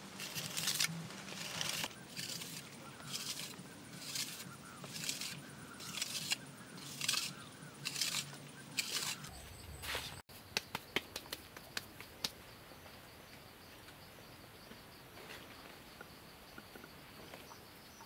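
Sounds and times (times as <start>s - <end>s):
faint outdoor background: 0.0s - 18.0s
trowel scraping wet plaster: 0.2s - 9.3s.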